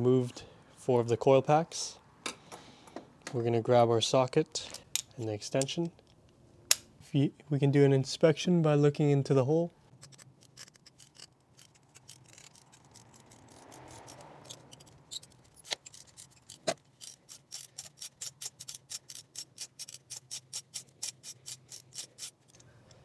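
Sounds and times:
ratchet wrench clicking: 12.0s - 22.7s.

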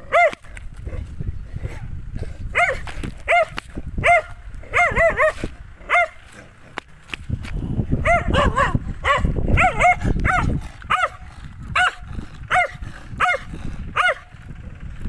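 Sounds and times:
dog barking: 0.1s - 0.4s, 2.5s - 6.2s, 8.0s - 14.3s.

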